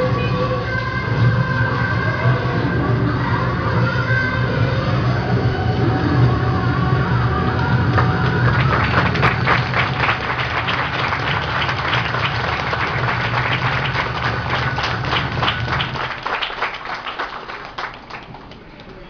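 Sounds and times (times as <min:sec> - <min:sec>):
low hum of music: 0:00.0 - 0:17.6
crowd applauding: 0:07.5 - 0:19.0.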